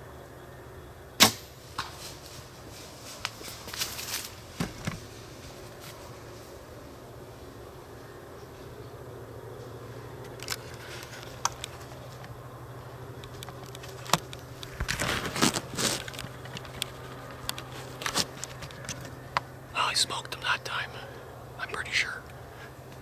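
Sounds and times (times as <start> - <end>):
steady low hum: 0.0 - 23.0
rustling of camera handling: 13.2 - 19.1.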